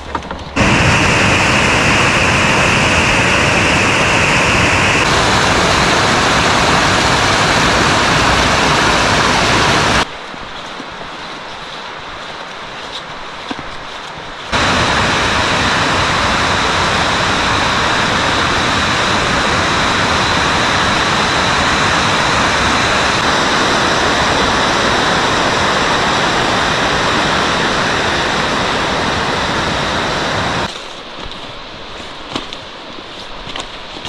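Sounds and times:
whitewater rushing in a creek: 0:00.6 - 0:10.1, 0:14.0 - 0:31.2.

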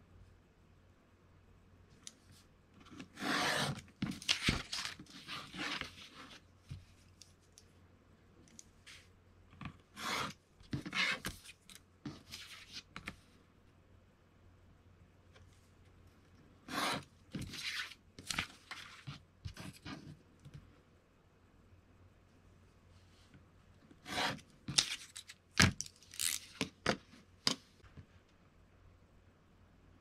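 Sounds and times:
knife scraping through board: 0:03.2 - 0:03.8, 0:10.0 - 0:10.3, 0:16.7 - 0:17.0.

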